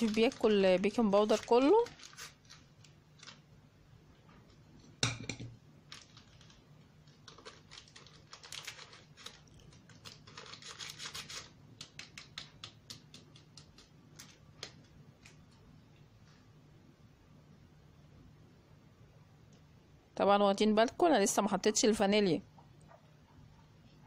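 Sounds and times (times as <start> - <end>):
flour sifting in metal bowl: 0.0 - 2.7.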